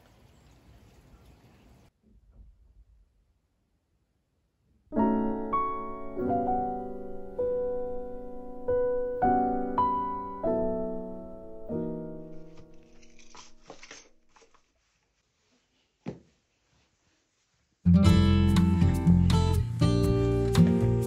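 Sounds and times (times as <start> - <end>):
piano playing slow chords: 4.9 - 12.5.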